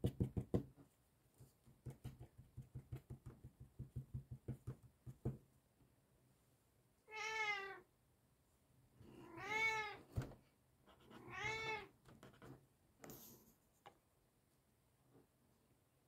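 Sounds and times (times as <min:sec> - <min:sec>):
cat meowing: 0:07.1 - 0:07.9, 0:09.2 - 0:10.1, 0:11.2 - 0:12.0.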